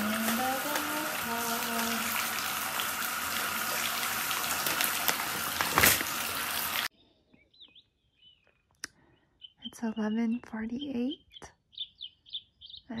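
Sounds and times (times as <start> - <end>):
water running from bathtub faucet: 0.0 - 6.9
faint high bird chirps: 6.9 - 13.0.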